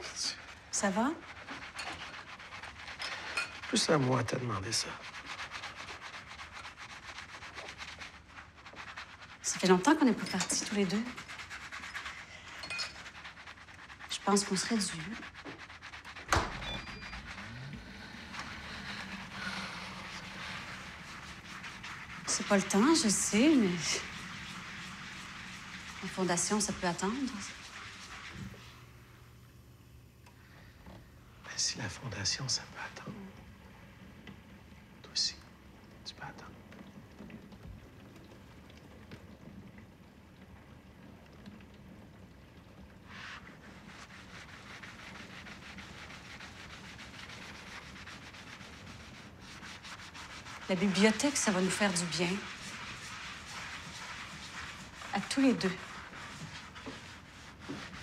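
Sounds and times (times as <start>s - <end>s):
towel rubbing glass bowl: 0.0s - 29.3s, 42.8s - 58.0s.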